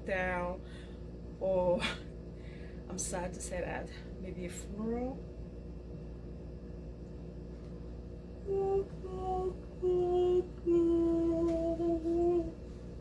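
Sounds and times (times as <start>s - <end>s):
woman humming slow tune: 8.4s - 13.0s.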